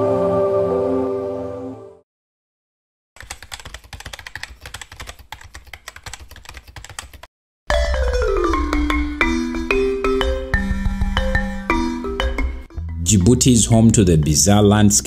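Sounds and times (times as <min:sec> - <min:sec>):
keyboard typing clicks: 0:03.2 - 0:07.3
soft background music: 0:10.8 - 0:15.0.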